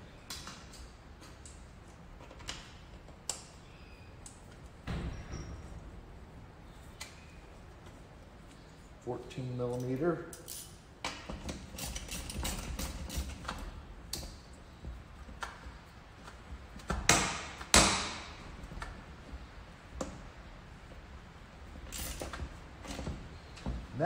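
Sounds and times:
loud sharp knocks: 16.9 - 18.4.

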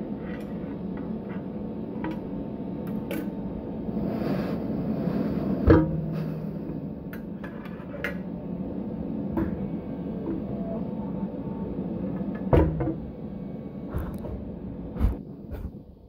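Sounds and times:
machine hum: 0.0 - 16.0.

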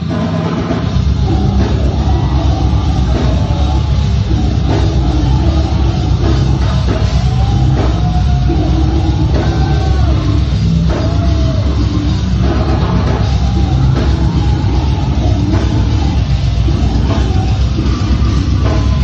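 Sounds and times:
heavy guitars: 0.0 - 19.0
pounding drum kit: 0.0 - 19.0.

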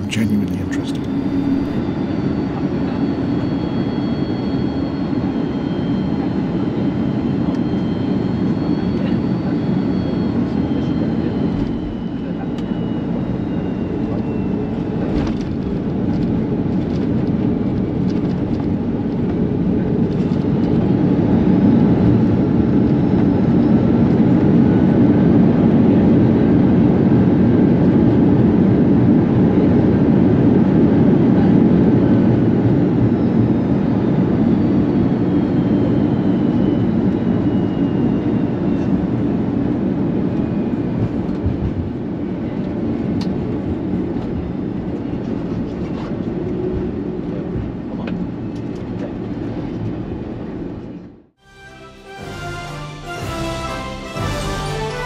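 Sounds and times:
jet engine and rolling roar: 0.0 - 51.4
faint whines falling in pitch: 0.7 - 15.9.

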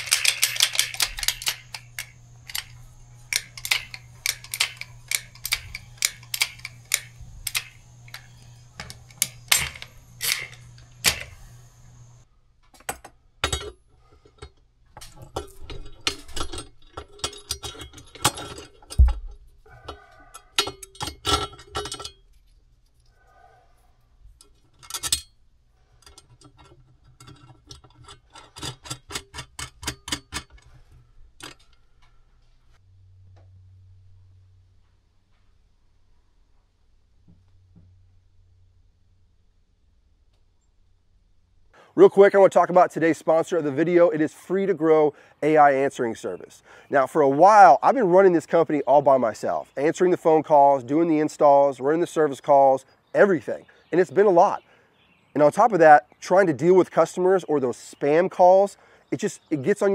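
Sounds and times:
steady low hum: 0.0 - 12.6, 30.0 - 41.8
clicking and tapping work noises: 0.0 - 22.2, 26.0 - 32.5.

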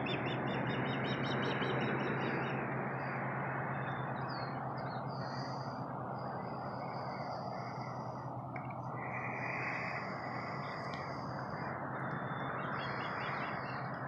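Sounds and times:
low hum: 0.0 - 14.0
outdoor background rush: 0.0 - 14.0.

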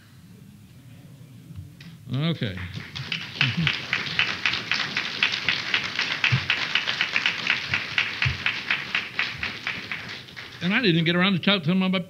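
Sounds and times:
audience applauding: 2.5 - 11.1.

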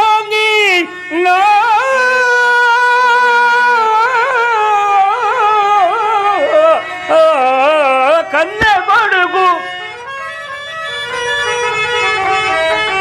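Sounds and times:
man singing held ornamented note: 0.0 - 9.8
harmonium: 0.0 - 13.0.

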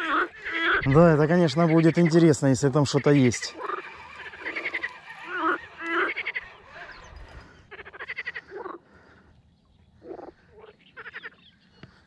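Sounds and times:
frogs croaking: 0.0 - 9.4, 10.0 - 12.0.

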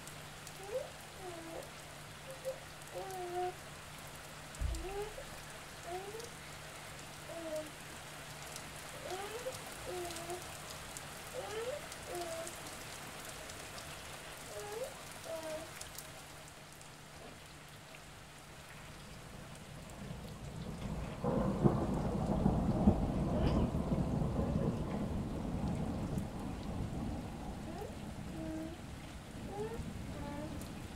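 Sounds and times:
rain falling: 0.0 - 30.9
low rumble of thunder: 4.6 - 6.3, 19.1 - 30.9.

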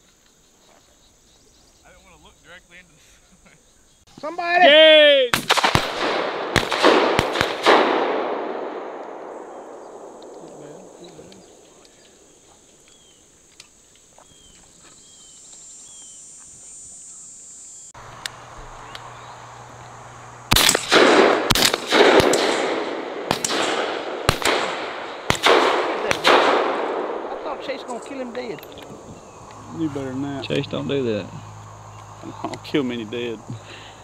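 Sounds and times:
faint chirps: 0.0 - 4.6, 9.2 - 20.5
steady high hiss: 0.0 - 34.0
shotgun shots with echo: 5.3 - 11.6, 20.5 - 28.6.

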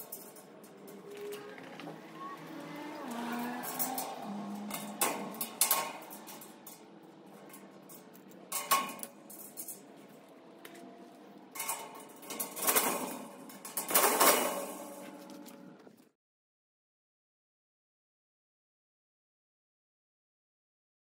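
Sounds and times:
metal clinks: 0.0 - 1.5, 2.6 - 10.3
screwdriver scraping and rattling: 0.0 - 1.8, 3.4 - 15.7.

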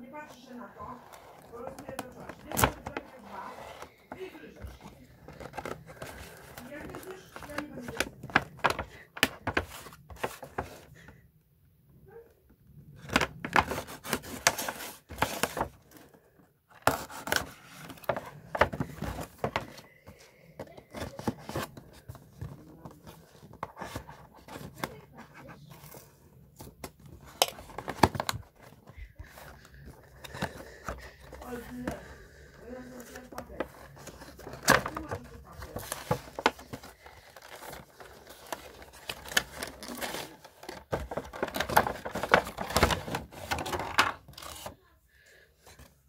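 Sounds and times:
cardboard scraping and tearing: 0.8 - 4.0, 13.4 - 15.9, 33.0 - 44.8.

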